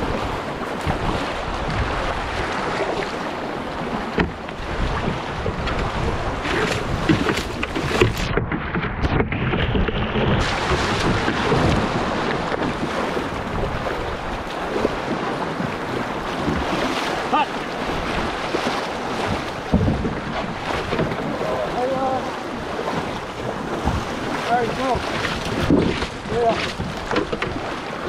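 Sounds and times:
rushing whitewater: 0.0s - 8.4s, 9.8s - 28.0s
wind buffeting microphone: 0.0s - 28.0s.

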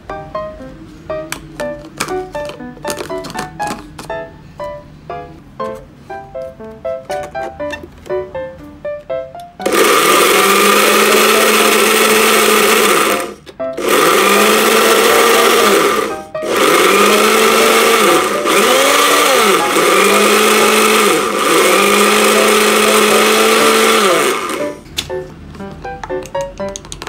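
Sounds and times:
electric blender motor running: 9.6s - 24.8s.

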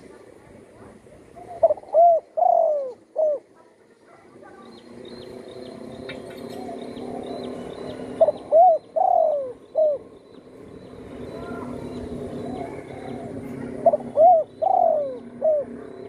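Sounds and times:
steady low hum: 0.0s - 16.0s
dove cooing: 1.2s - 4.6s, 6.3s - 10.2s, 11.2s - 16.0s.

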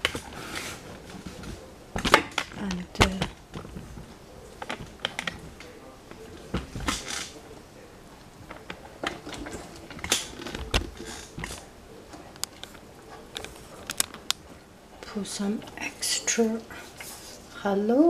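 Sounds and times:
kitchenware clicking and knocking: 1.0s - 5.8s.

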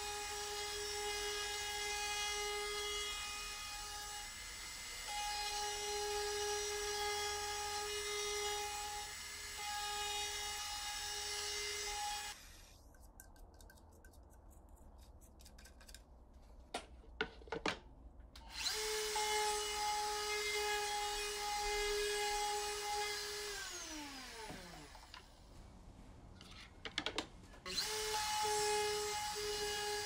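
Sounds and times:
router whining: 18.4s - 25.4s.

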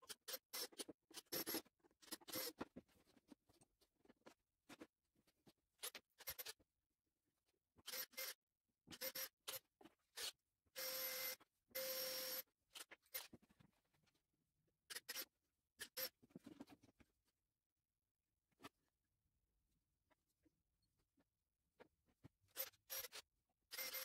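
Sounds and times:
cordless drill running: 10.8s - 12.4s, 23.7s - 24.0s.

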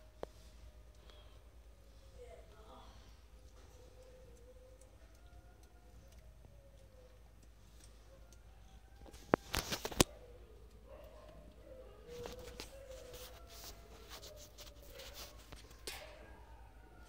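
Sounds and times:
soft rustling: 9.1s - 16.1s.

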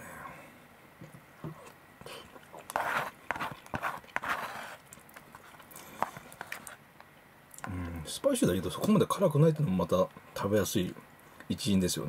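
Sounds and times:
chewing and breathing mouth noises: 1.5s - 6.8s.

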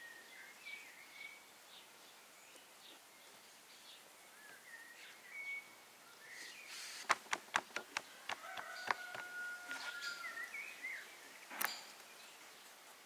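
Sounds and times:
birds chirping faintly: 0.0s - 13.0s
taps on wooden board: 7.1s - 9.3s.

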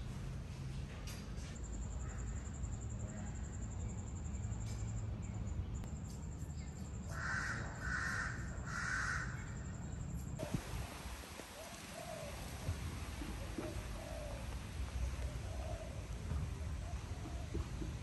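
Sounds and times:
crow cawing: 7.1s - 9.6s.

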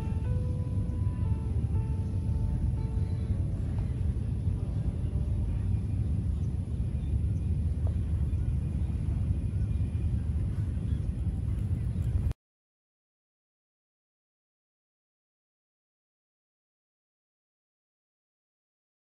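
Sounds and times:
wind buffeting microphone: 0.0s - 12.4s.

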